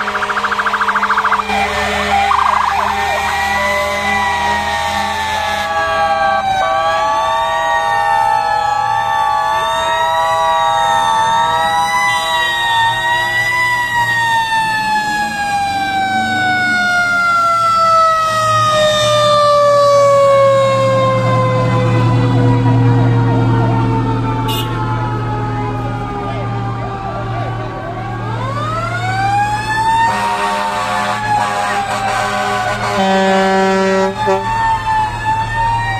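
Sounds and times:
truck engine rumble: 0.0 - 6.3
fire truck sirens wailing: 0.0 - 35.9.

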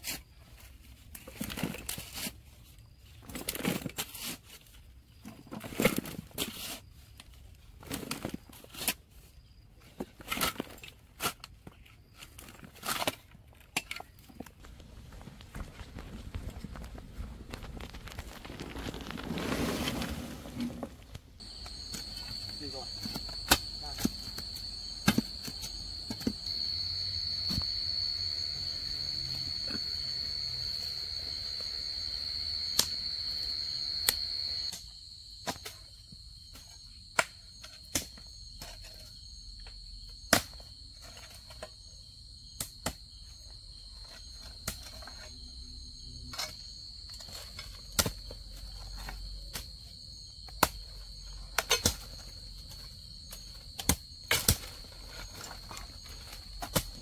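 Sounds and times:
insects trilling: 13.9 - 20.6, 21.4 - 57.0.

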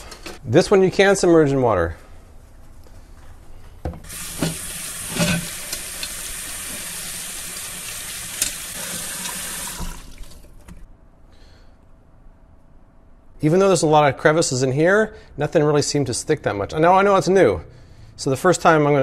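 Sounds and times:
faucet running into steel sink: 4.0 - 10.8.

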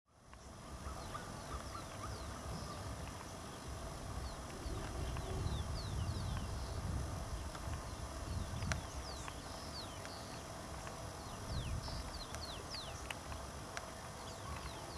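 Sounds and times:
small birds chirping: 0.2 - 14.9
wind rumbling on microphone: 0.4 - 14.9
sharp clicks: 7.4 - 14.9.

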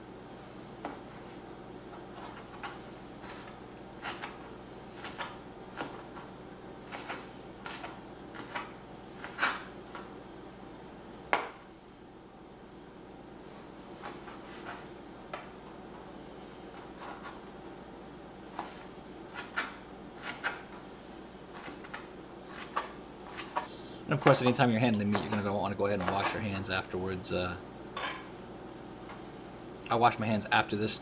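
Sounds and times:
knife chopping on cutting board: 5.0 - 6.0, 6.8 - 9.7, 18.5 - 20.7.

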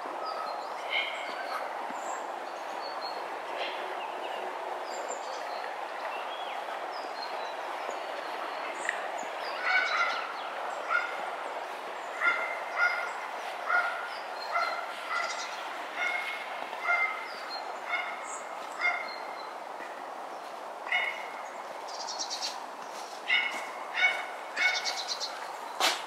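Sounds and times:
steady background noise: 0.0 - 26.0
animal calling: 12.2 - 19.3, 23.3 - 25.2.

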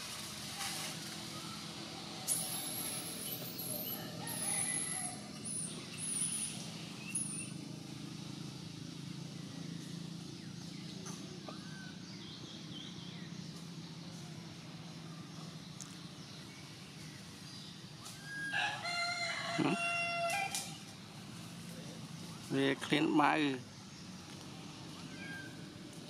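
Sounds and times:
high-pitched chirps and squeals: 1.4 - 7.6, 18.0 - 18.8.

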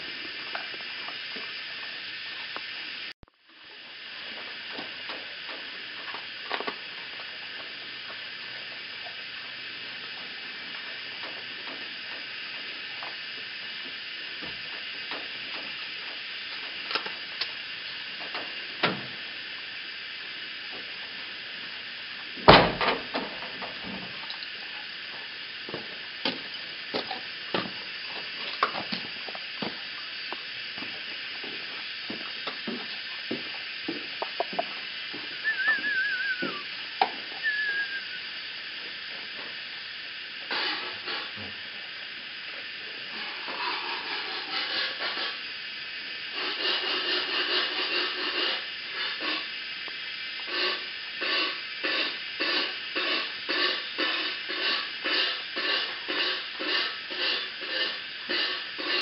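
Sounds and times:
steady hiss: 0.0 - 59.0
warbling whistle: 35.4 - 38.4.

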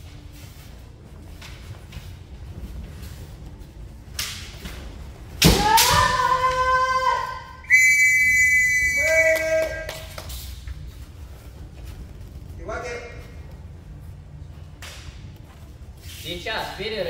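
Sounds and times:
bamboo sword strike crack: 5.4 - 6.3
woman's high-pitched shout: 5.6 - 7.6.

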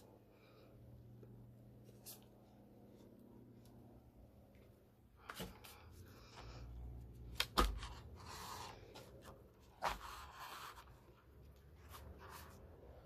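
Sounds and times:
paper rustling and scraping: 7.3 - 12.7.

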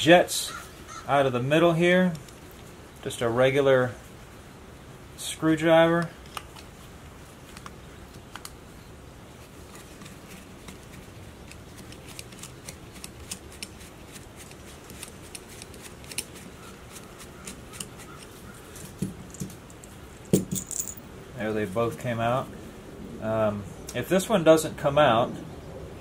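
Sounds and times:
screwdriver clicking and scraping metal: 14.4 - 19.9.

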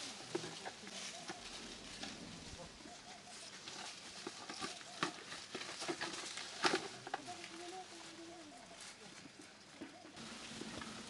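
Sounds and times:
leaves rustling: 0.0 - 11.0.

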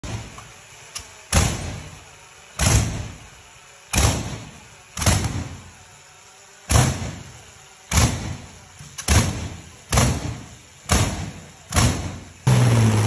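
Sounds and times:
engine backfiring bangs: 7.9 - 13.0.

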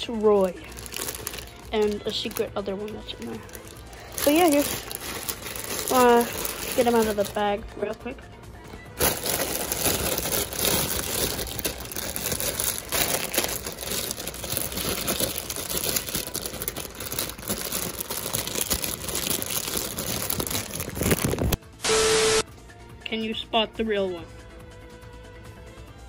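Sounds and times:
plastic bag crinkling: 0.0 - 8.1, 9.0 - 21.6.

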